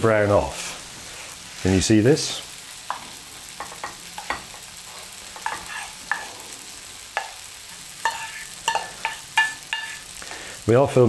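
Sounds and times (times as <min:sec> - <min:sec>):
wooden spoon scraping a pan: 0:02.9 - 0:06.5, 0:08.0 - 0:10.2.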